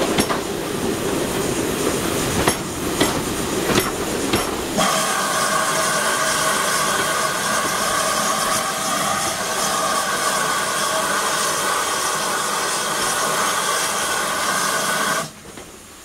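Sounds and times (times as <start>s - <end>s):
train wheels clacking over rail joints: 0.0s - 9.4s, 15.2s - 15.9s
loud steam hiss: 0.0s - 16.0s.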